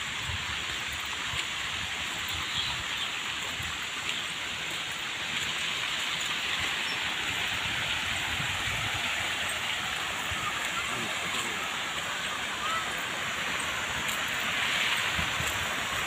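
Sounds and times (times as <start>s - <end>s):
wind rumble on microphone: 0.0s - 3.9s, 6.5s - 10.7s, 14.8s - 16.0s
fountain water splashing: 0.0s - 16.0s.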